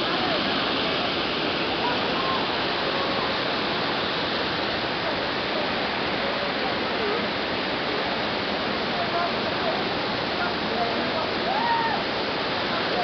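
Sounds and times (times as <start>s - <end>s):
faint voices: 0.0s - 7.5s
water flowing over rocks: 0.0s - 13.0s.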